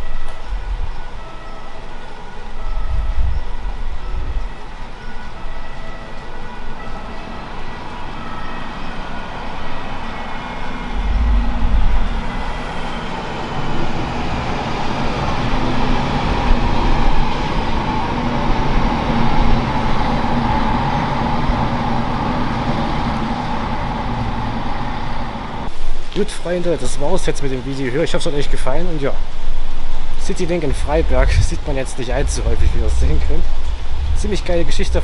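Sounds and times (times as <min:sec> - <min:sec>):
train rumble: 0:00.0 - 0:35.0
steady hum: 0:10.8 - 0:14.1, 0:30.6 - 0:35.0.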